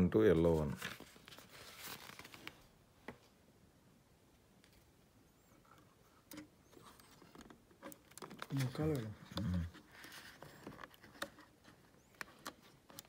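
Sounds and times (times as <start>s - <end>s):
paper pages rustling: 0.3s - 2.7s, 6.6s - 13.0s.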